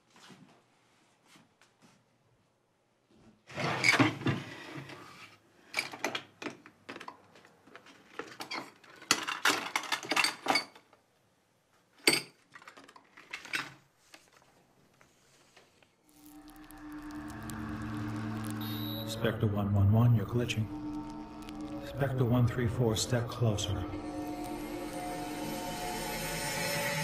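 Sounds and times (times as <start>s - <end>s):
small objects clattering in a drawer: 5.8s - 10.8s, 12.0s - 13.9s.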